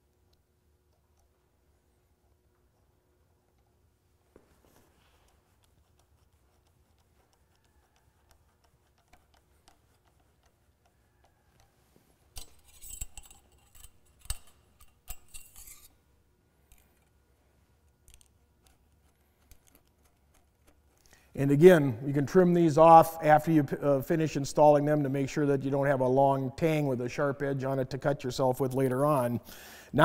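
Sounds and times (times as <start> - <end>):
hand tools clicking on hose clamps: 5.3 - 15.9.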